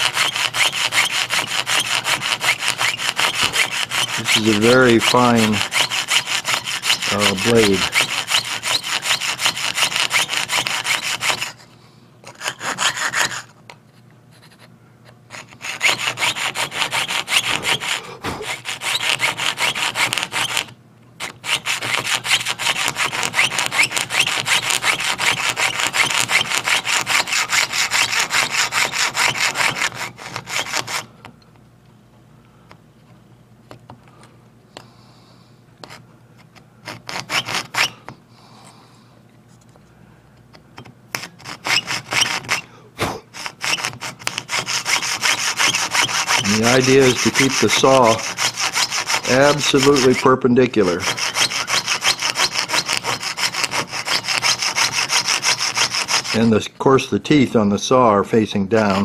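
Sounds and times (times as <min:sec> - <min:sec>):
saw rasping through metal: 0:00.0 - 0:13.5, 0:15.3 - 0:31.1, 0:36.8 - 0:38.0, 0:41.2 - 0:42.7, 0:43.3 - 0:56.6, 0:58.8 - 0:59.0.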